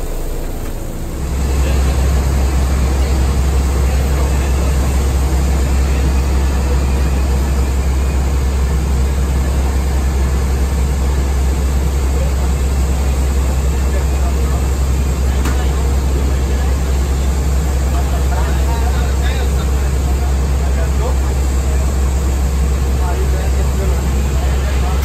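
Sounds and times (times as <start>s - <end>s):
strong low hum: 0.0s - 17.9s
machinery drone: 0.0s - 25.0s.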